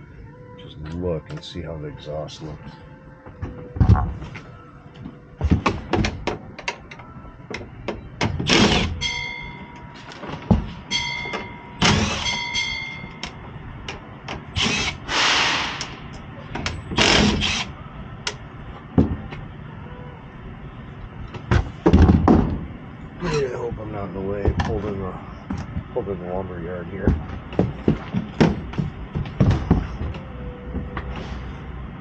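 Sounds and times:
brief hiss: 0:15.1 - 0:16.0.

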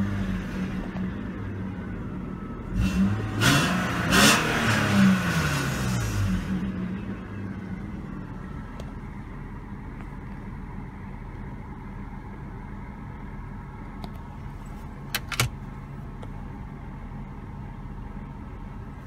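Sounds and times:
car engine idling: 0:06.0 - 0:19.0.

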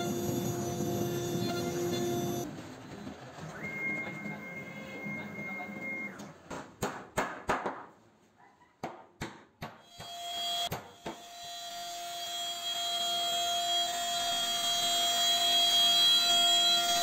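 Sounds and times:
router bit cutting wood: 0:00.0 - 0:02.5
router spindle whining: 0:00.0 - 0:02.5.

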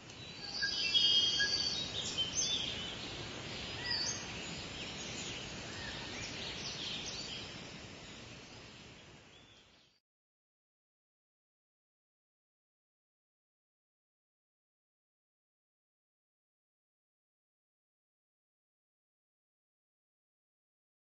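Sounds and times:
outdoor background hiss: 0:00.0 - 0:10.0
small birds chirping: 0:00.0 - 0:10.0.

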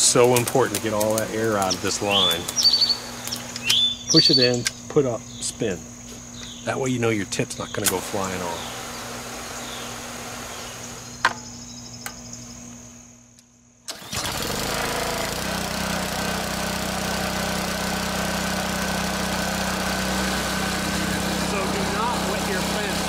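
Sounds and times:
pressure washer water hissing: 0:00.0 - 0:04.5, 0:06.9 - 0:11.2, 0:13.9 - 0:23.0
small gasoline engine pull-started: 0:07.8 - 0:11.1, 0:13.9 - 0:23.0.

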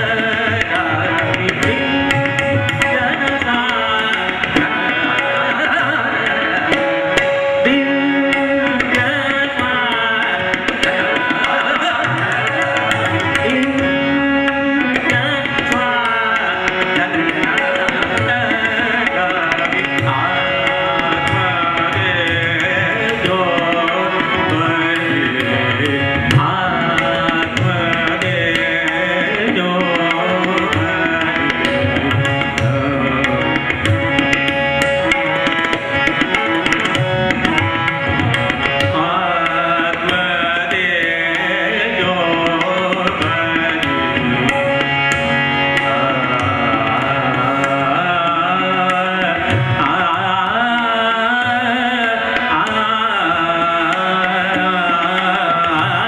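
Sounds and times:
harmonium: 0:00.0 - 0:56.0
tabla playing: 0:00.0 - 0:56.0
tanpura drone: 0:00.0 - 0:56.0
man singing ornamented phrases: 0:07.6 - 0:10.5, 0:11.1 - 0:33.6, 0:38.9 - 0:44.7, 0:45.8 - 0:56.0.

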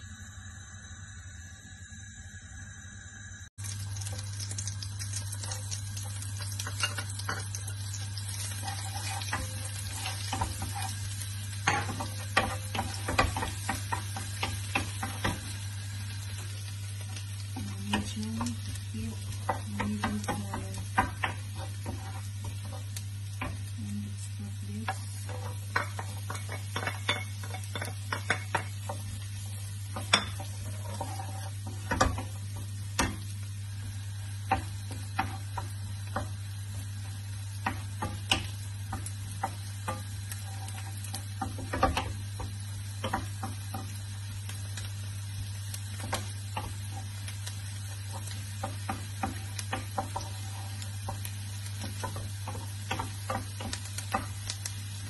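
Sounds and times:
low hum: 0:00.0 - 0:26.5
onion sizzling in a pan: 0:03.6 - 0:55.0
wooden spoon scraping a pan: 0:06.4 - 0:15.6, 0:16.5 - 0:33.2, 0:33.8 - 0:44.2, 0:45.8 - 0:55.0.

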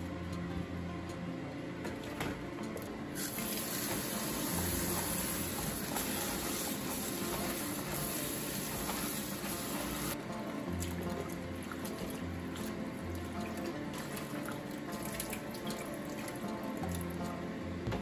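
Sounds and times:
tap water running onto leaves: 0:03.2 - 0:17.2.

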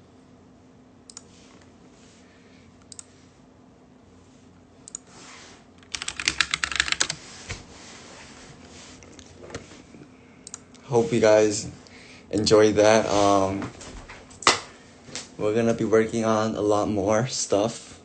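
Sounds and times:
computer keyboard typing: 0:05.8 - 0:07.2.

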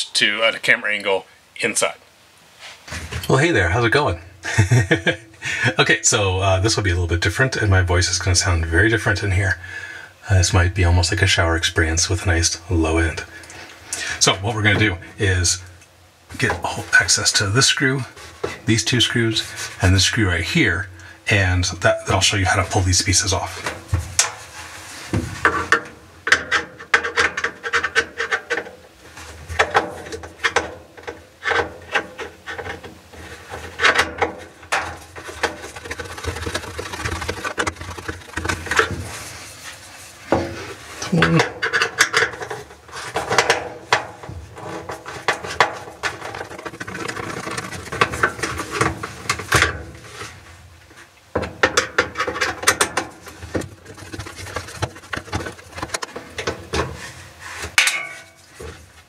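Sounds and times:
hands rubbing against plastic: 0:32.4 - 0:41.3, 0:44.6 - 0:51.1, 0:53.2 - 0:57.8
screwdriver scraping and clicking: 0:33.5 - 0:39.0.

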